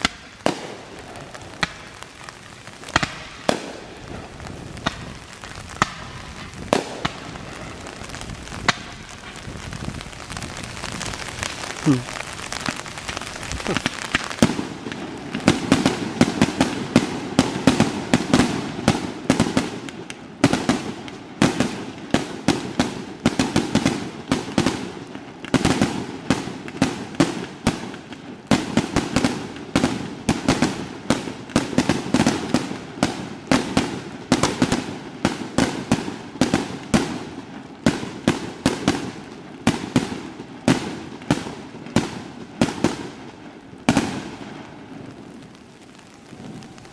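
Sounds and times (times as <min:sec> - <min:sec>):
fireworks bangs and crackles: 0:00.0 - 0:46.9.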